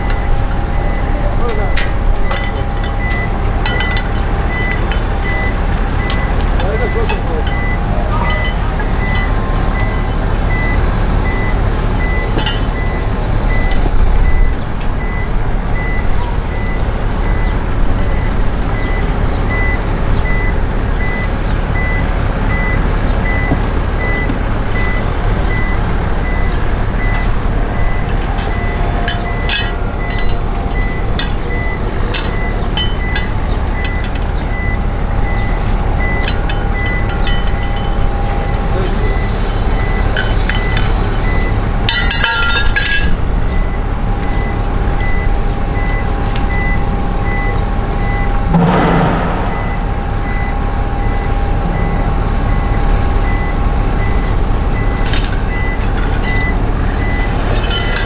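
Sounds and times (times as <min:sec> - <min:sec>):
metallic clicks and clanks: 0:00.0 - 0:10.6, 0:12.0 - 0:14.5, 0:26.4 - 0:43.8, 0:54.0 - 0:58.0
electronic warning beeps: 0:00.0 - 0:41.8, 0:42.8 - 0:58.0
motor rumbling: 0:00.0 - 0:58.0.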